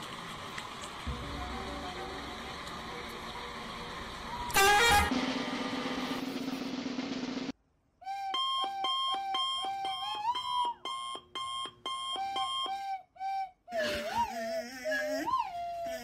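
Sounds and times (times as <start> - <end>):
electronic alarm beeping: 8.4 - 12.8.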